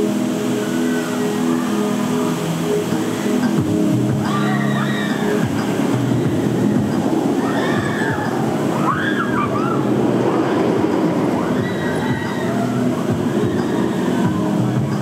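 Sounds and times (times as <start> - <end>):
roller coaster rolling roar: 0.0 - 15.0
riders screaming: 4.2 - 5.5, 7.4 - 10.6, 11.4 - 14.5.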